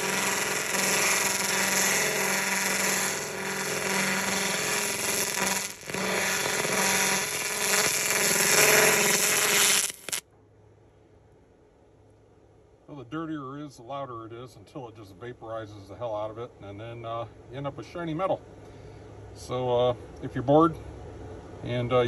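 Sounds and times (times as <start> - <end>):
laser hissing with hum: 0.0 - 10.2.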